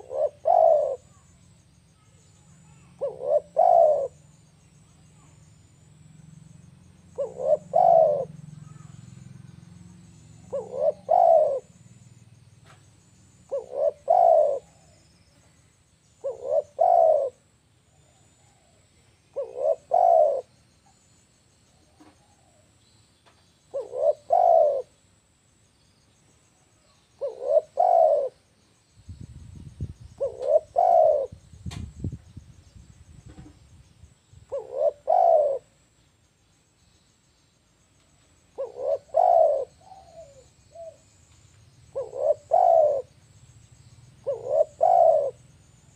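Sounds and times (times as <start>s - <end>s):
dove cooing: 0.0s - 1.4s, 2.0s - 4.2s, 6.9s - 9.1s, 10.3s - 12.1s, 13.5s - 15.2s, 16.2s - 17.4s, 18.0s - 20.6s, 23.7s - 25.0s, 27.2s - 28.5s, 30.2s - 31.5s, 34.5s - 35.8s, 38.5s - 41.1s, 41.9s - 43.2s, 44.2s - 45.5s.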